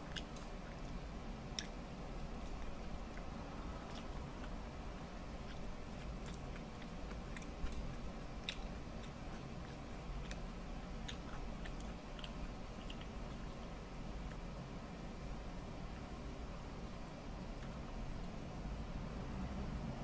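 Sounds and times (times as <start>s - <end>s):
chewing food: 0.0s - 14.5s
steady low hum: 0.0s - 20.0s
wet mouth clicks and smacks: 11.1s - 13.4s.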